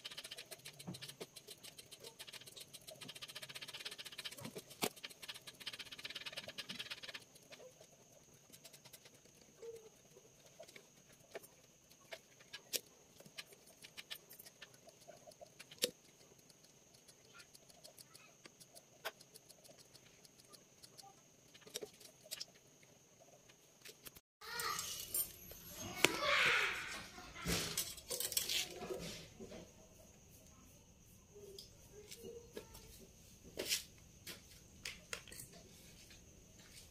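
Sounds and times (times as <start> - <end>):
scratchy rasp of wire: 0.0 - 16.0.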